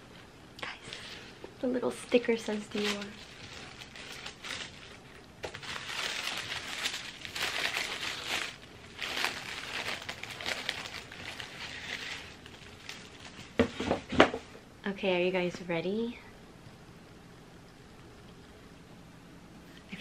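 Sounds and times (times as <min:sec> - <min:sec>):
tissue paper crinkling: 0:02.1 - 0:14.0.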